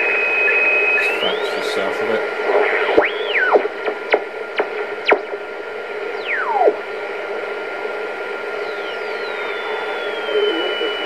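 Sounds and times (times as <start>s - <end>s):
radio whistles sweeping down: 0.0s - 5.4s, 6.1s - 6.8s, 8.5s - 11.0s
radio band hiss: 0.0s - 11.0s.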